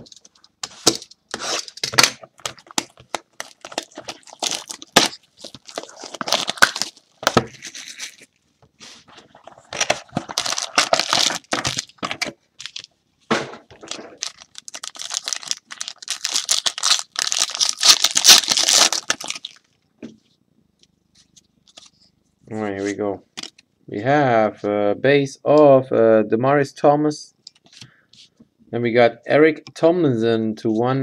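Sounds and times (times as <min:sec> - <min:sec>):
wrapping tearing and crinkling: 0:01.3 - 0:08.3, 0:09.4 - 0:12.9, 0:13.8 - 0:19.7.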